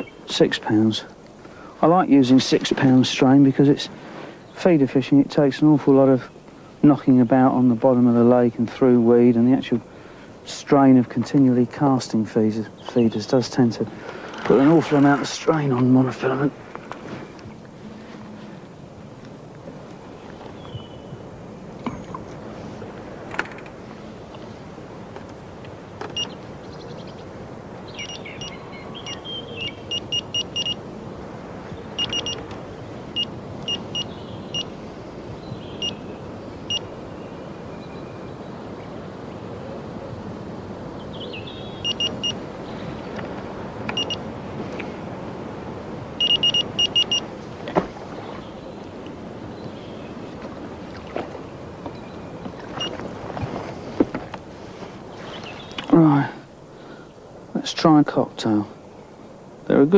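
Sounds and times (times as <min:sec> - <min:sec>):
wind and water rushing: 0:00.0 - 0:59.9
bite alarm bleeps: 0:28.0 - 0:30.8, 0:32.0 - 0:32.4, 0:33.2 - 0:34.7, 0:41.8 - 0:42.4, 0:44.0 - 0:44.2, 0:46.2 - 0:47.3.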